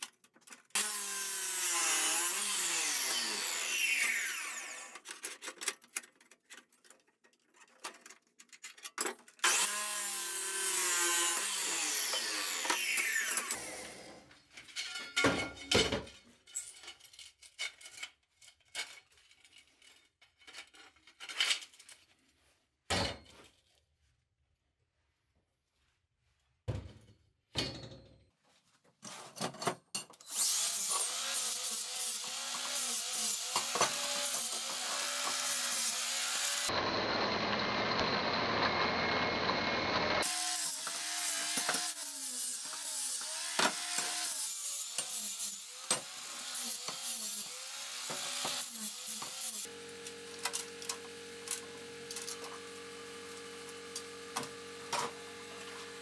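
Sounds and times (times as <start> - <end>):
chop saw cutting steel: 0.7 - 5.1, 9.4 - 14.3, 30.2 - 56.0
angle grinder grinding steel: 0.8 - 5.0, 9.4 - 14.3, 30.3 - 56.0
steel pieces clanking: 14.5 - 22.0.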